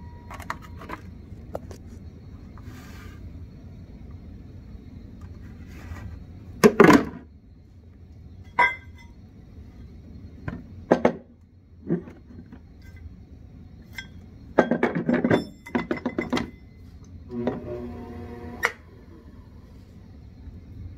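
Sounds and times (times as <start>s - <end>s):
knocks and clatters: 14.6s - 16.6s.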